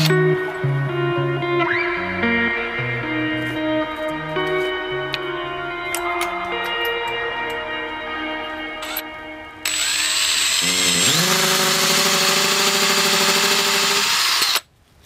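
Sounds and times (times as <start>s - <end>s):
power drill boring wood: 9.6s - 14.6s.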